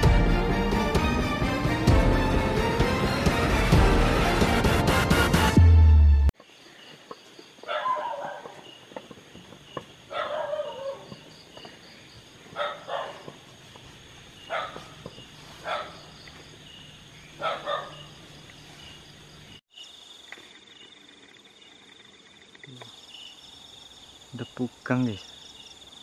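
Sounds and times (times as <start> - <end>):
night insects chorus: 6.4 - 26.0
dog barking: 7.6 - 8.6, 10.1 - 11.2, 12.5 - 13.3, 14.4 - 16.1, 17.4 - 18.1.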